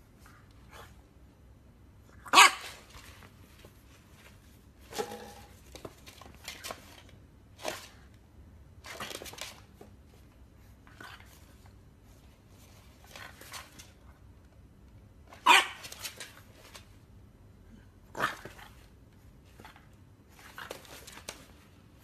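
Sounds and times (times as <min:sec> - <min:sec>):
puppy barking: 0:02.2 - 0:02.8, 0:15.4 - 0:15.9.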